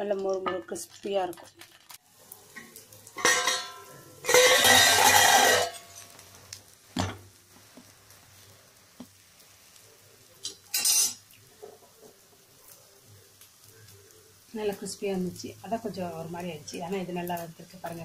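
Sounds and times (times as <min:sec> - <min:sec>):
pan lid clanking: 0:03.2 - 0:05.9.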